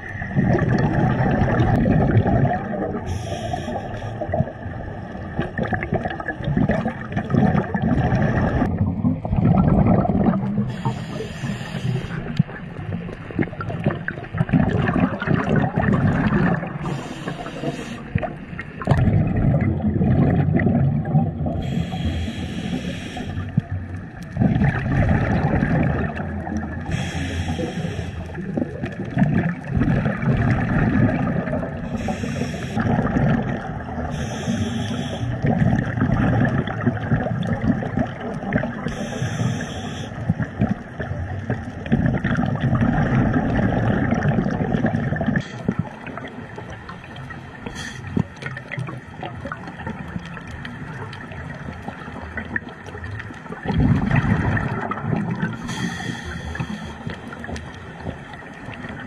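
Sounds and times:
exhaled bubbles gurgling underwater: 0:00.0 - 0:59.0
regulator inhalation hiss: 0:03.0 - 0:04.2, 0:10.7 - 0:12.3, 0:16.8 - 0:18.2, 0:21.6 - 0:23.5, 0:26.9 - 0:28.4, 0:31.8 - 0:32.8, 0:34.1 - 0:35.4, 0:38.9 - 0:40.2, 0:47.6 - 0:48.2, 0:55.6 - 0:57.3.

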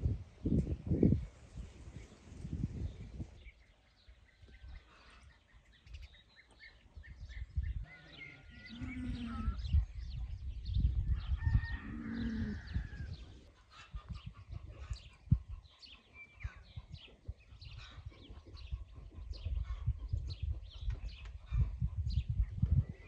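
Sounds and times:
small birds chirping: 0:00.3 - 0:23.0
chickens calling: 0:04.1 - 0:23.0.

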